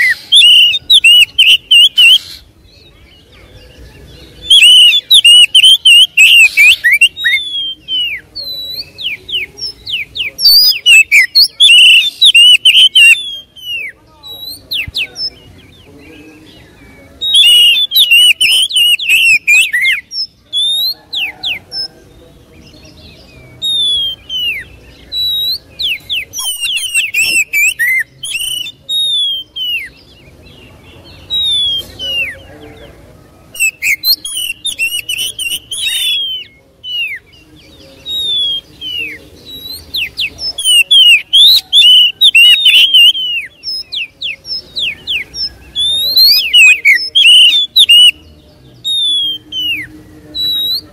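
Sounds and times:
bird singing: 0.0 - 50.9.

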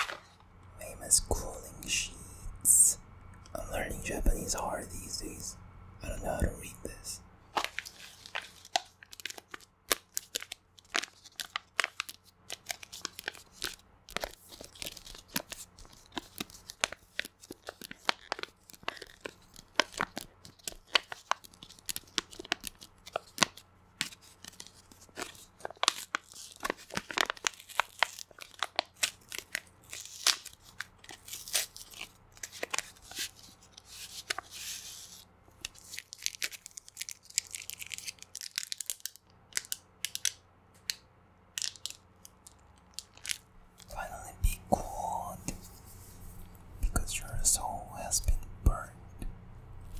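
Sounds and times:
packet crinkling and tearing: 0.0 - 1.7, 6.9 - 46.1
nails clicking on packet: 35.6 - 44.2.

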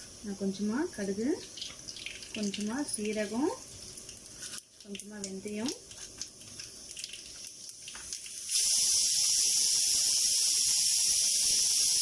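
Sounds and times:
hot oil sizzling: 0.0 - 12.0.

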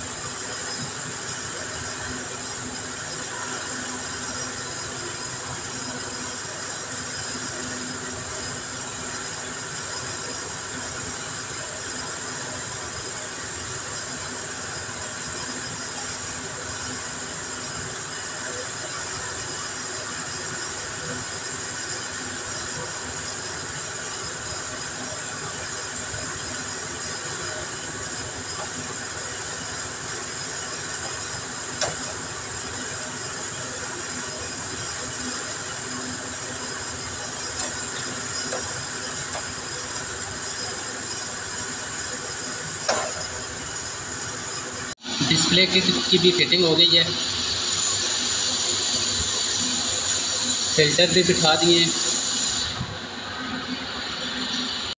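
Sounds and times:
steady rushing hiss: 45.0 - 52.8.

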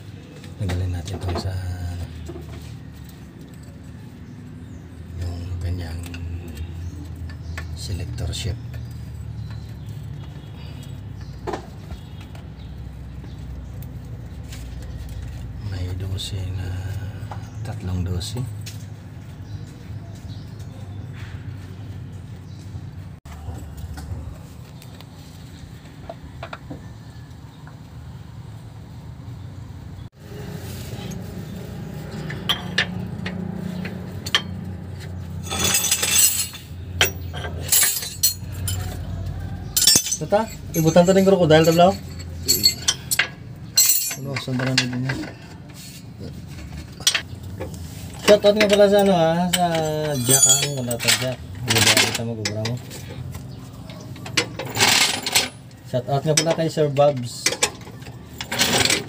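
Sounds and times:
wrench rattling scrape: 32.0 - 53.3, 54.2 - 59.0
socket wrench clinking on metal: 35.4 - 39.0, 39.8 - 45.0, 48.4 - 52.2.

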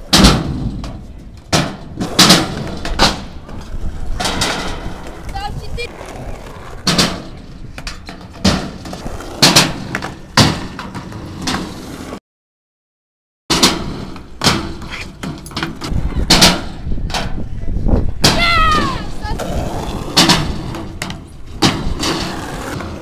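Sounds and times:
skateboard wheels rolling: 0.0 - 12.2, 18.6 - 23.0
skateboards clacking on ground: 0.0 - 12.2, 13.5 - 17.5, 18.2 - 23.0.

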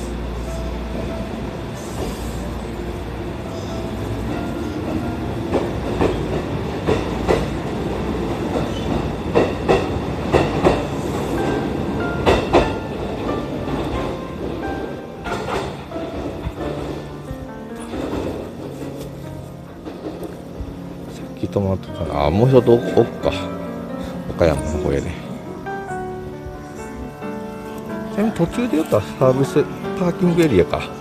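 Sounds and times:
electric train low rumble: 0.0 - 31.0
train wheels clacking over rail joints: 4.2 - 17.2, 17.8 - 20.9.

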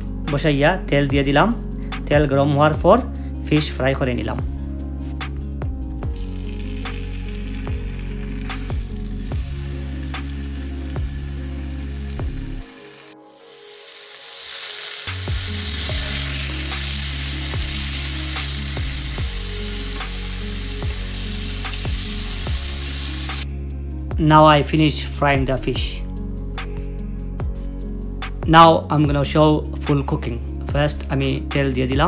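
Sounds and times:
background music: 0.0 - 32.0
fish sizzling in hot oil: 6.1 - 23.5.

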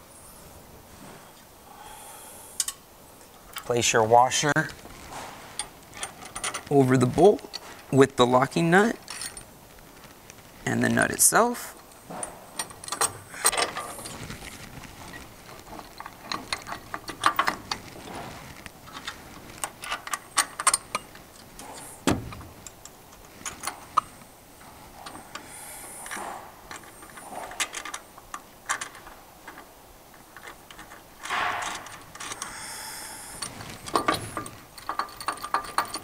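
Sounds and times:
steel hardware clicking and clinking: 5.5 - 8.0, 8.9 - 9.5, 11.8 - 14.4, 15.1 - 24.3, 24.9 - 36.0
dull thump: 22.0 - 22.4.

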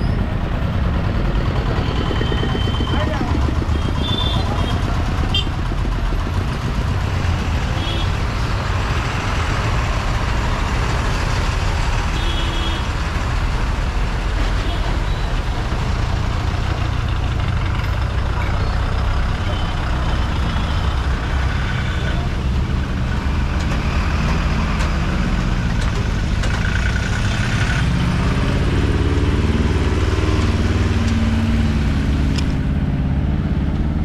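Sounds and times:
truck engines running: 0.0 - 34.0.

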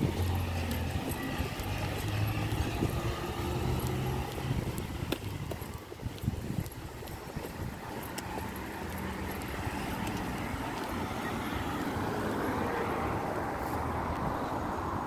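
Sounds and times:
light footsteps: 0.0 - 12.0
vehicle tyre and road noise: 0.0 - 15.0.

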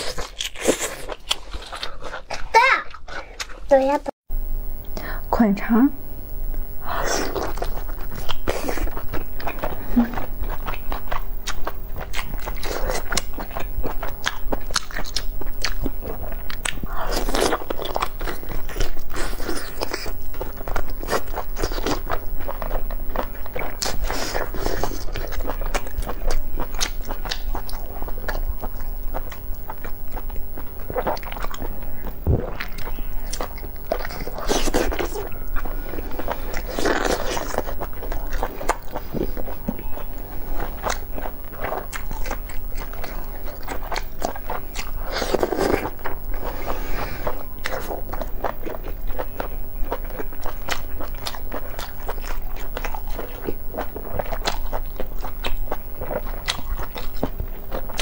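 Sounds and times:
biting and chewing food: 0.0 - 4.5, 6.5 - 58.0.

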